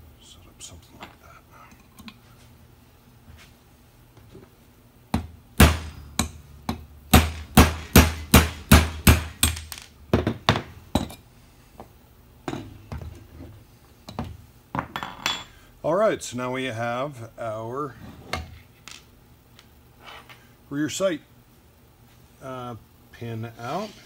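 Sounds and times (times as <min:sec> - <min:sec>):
hammer striking metal punch: 0:05.2 - 0:11.2.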